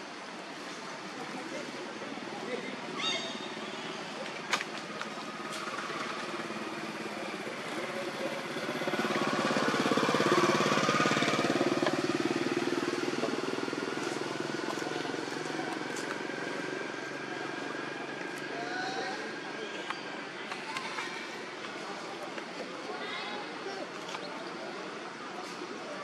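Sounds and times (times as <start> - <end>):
vehicle engine passing: 5.2 - 18.6.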